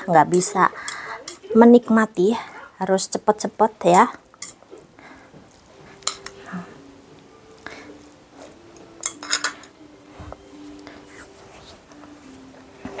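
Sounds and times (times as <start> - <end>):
chopsticks clicking against bowl: 6.0 - 6.4.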